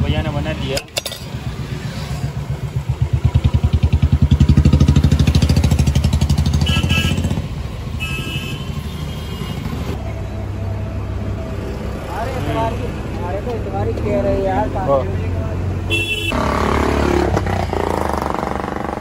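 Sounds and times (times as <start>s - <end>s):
motorcycle engine running: 1.4s - 7.6s.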